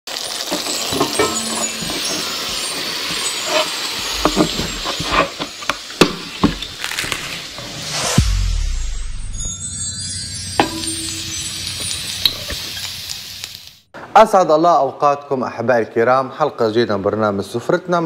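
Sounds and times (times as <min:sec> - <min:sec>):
rising whoosh: 0:07.2 - 0:12.3
deep boom: 0:07.8 - 0:09.6
steady hiss: 0:10.6 - 0:13.9.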